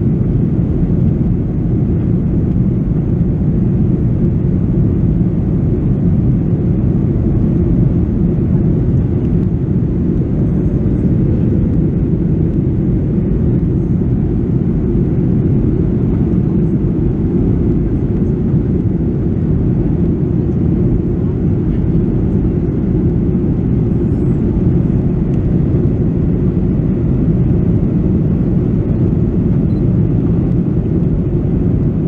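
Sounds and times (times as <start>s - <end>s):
airflow over fuselage: 0.0s - 32.0s
jet engine cabin rumble: 0.0s - 32.0s.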